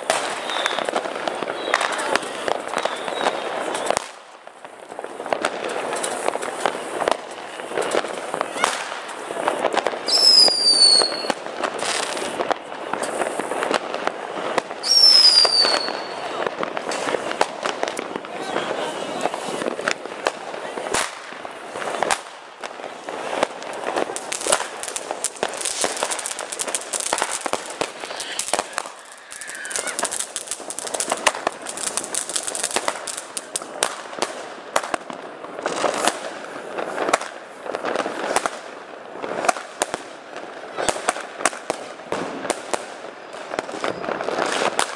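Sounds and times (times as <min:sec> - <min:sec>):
fireworks crackling pops: 0:00.0 - 0:44.9
firework whistle: 0:00.1 - 0:04.1, 0:10.0 - 0:12.2, 0:14.8 - 0:17.2, 0:25.4 - 0:31.5, 0:43.2 - 0:44.9.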